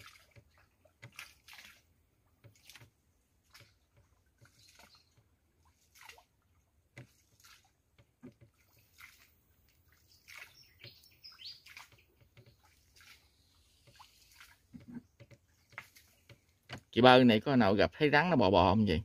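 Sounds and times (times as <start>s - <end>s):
water sloshing and dripping: 0.0s - 17.3s
faint bird chirps: 4.5s - 5.2s, 9.9s - 15.8s.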